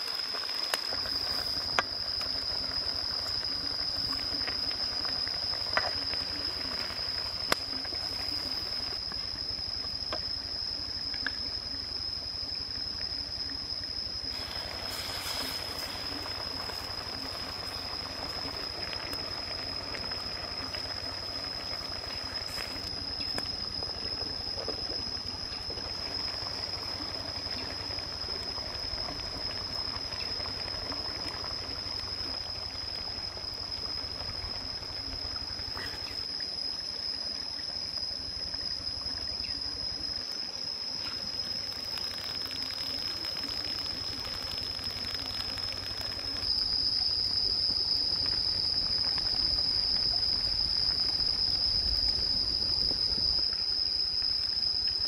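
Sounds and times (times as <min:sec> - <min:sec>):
stream trickling over rocks: 0:00.0 - 0:55.0.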